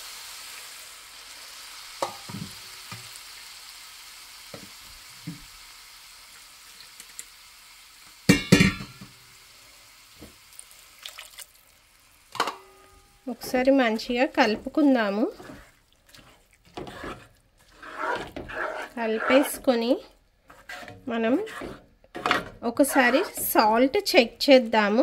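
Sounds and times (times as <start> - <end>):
oil sizzling: 0.0 - 25.0
water pouring into pan: 10.4 - 12.4.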